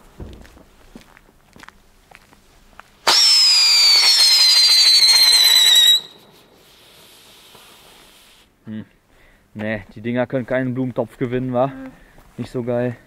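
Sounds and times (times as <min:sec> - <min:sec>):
firework whistle sliding down: 0:03.1 - 0:08.4
faint fizzing hiss: 0:06.0 - 0:08.6.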